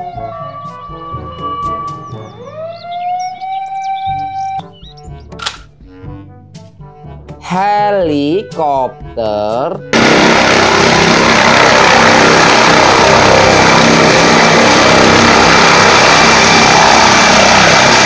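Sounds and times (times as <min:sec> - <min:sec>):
helicopter rotor and engine roar: 0:09.9 - 0:18.0.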